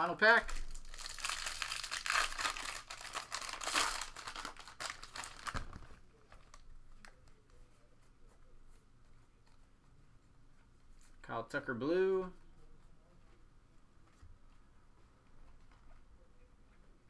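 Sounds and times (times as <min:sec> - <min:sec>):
foil wrapper crinkling: 0:00.4 - 0:07.2.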